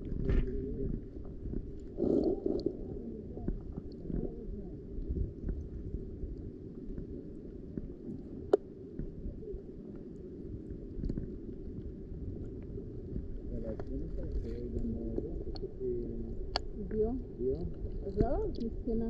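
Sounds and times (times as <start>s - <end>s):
faint underwater clicks: 0.0s - 19.0s
underwater rumbling wash: 0.0s - 19.0s
water gurgle: 0.0s - 19.0s.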